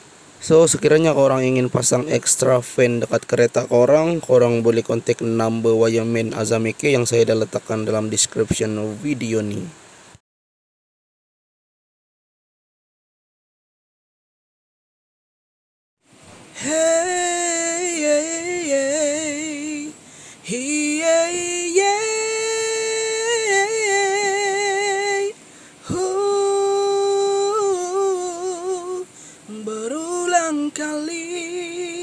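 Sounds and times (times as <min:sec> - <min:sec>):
woman singing with vibrato: 0:16.6 - 0:32.0.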